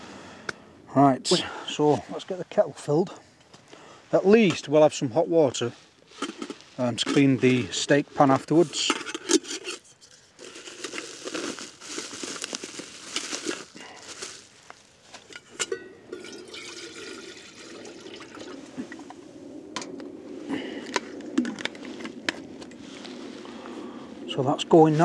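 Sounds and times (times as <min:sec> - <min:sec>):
fabric sack rustling: 0:10.2 - 0:15.3
water pouring into kettle: 0:16.1 - 0:19.1.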